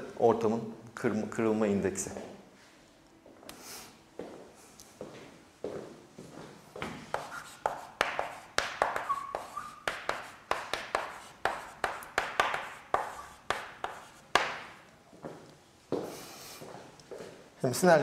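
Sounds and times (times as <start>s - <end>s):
writing taps and scratches: 6.8s - 14.8s.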